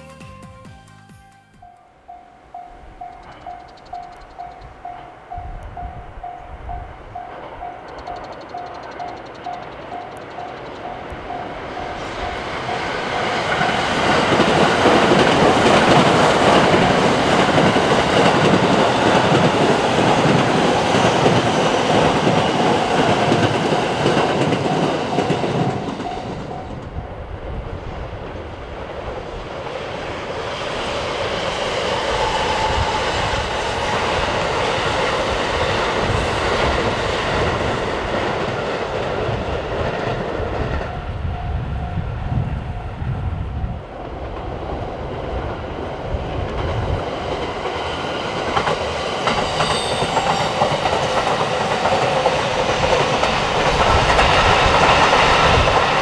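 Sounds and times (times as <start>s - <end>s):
crossing warning bell: 0.0s - 19.3s, 20.9s - 27.4s, 40.4s - 43.9s, 49.0s - 56.0s
train wheels clicking over rail joints: 2.5s - 27.0s, 44.0s - 56.0s.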